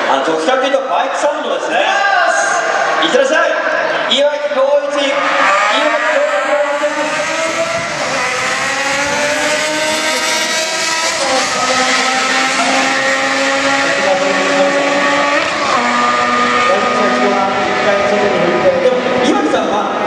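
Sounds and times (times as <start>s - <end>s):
motorcycle engine revving: 5.0s - 19.8s.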